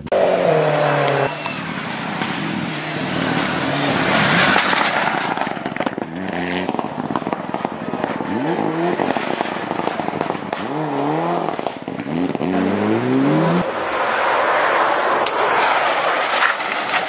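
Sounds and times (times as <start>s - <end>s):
car engine revving: 0.0s - 16.1s
gravel spraying: 0.5s - 12.6s, 13.9s - 17.0s
sharp crackles and clicks: 4.3s - 12.6s, 15.2s - 17.0s.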